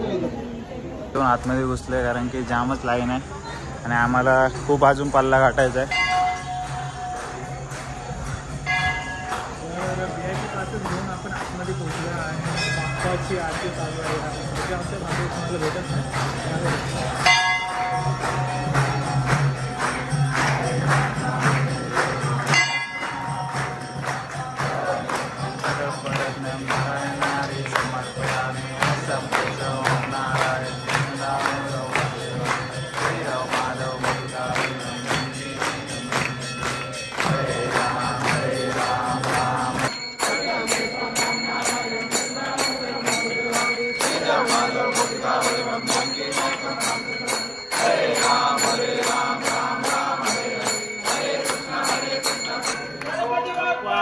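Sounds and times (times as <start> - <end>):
rhythmic percussion beat: 3.3 - 53.6
devotional singing: 12.1 - 54.0.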